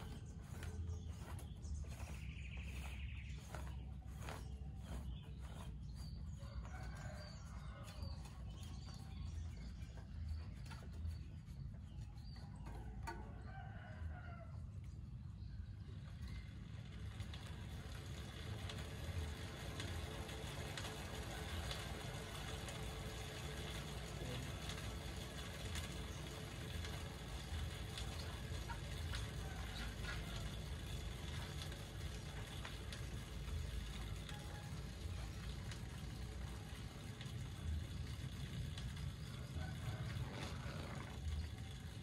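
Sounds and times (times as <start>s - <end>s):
rooster crowing: 6.4s - 8.3s.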